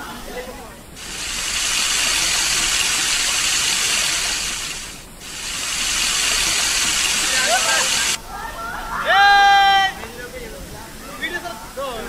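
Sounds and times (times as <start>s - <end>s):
waterfall hiss: 1.0s - 8.2s.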